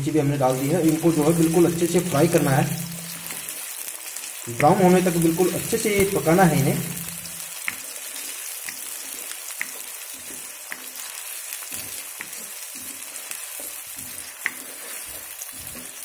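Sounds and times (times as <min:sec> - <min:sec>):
onions sizzling in hot oil: 0:00.0 - 0:16.0
spoon tapping against pan: 0:07.6 - 0:07.9, 0:08.6 - 0:08.9, 0:09.5 - 0:14.7
spoon stirring and scraping: 0:07.6 - 0:16.0.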